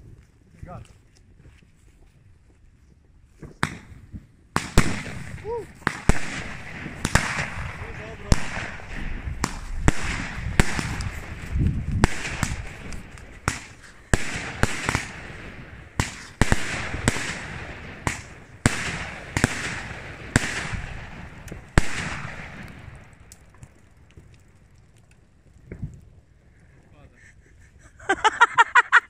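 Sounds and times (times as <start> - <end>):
fireworks banging and crackling: 3.4 - 26.1.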